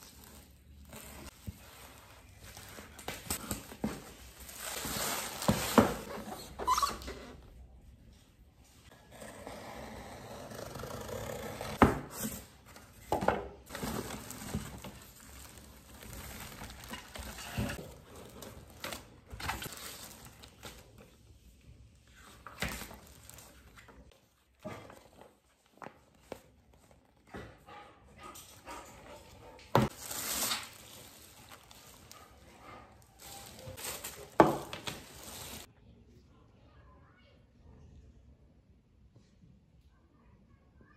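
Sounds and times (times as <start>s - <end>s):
plastic wrapping crinkling: 0.0s - 6.1s, 13.7s - 21.2s, 22.1s - 24.2s, 29.9s - 35.7s.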